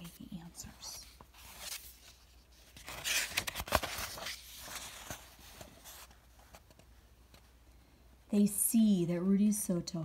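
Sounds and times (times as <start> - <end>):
book page turning: 0.9 - 7.5.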